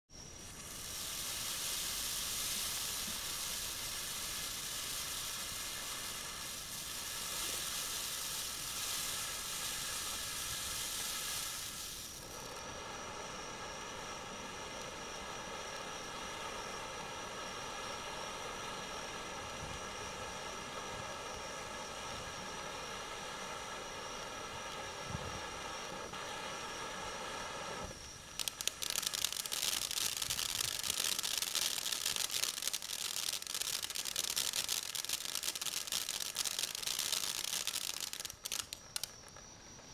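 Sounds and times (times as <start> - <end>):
firework spark-spraying hiss: 0.1 - 39.9
sharp crackling pops: 27.7 - 39.9.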